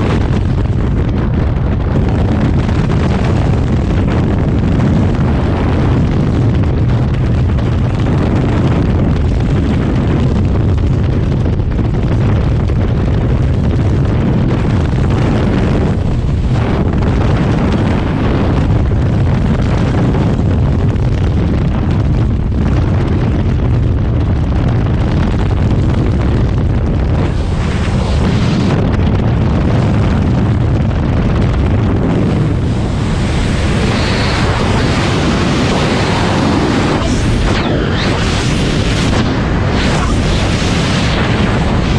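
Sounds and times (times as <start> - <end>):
wind roaring over microphone: 0.0 - 41.9.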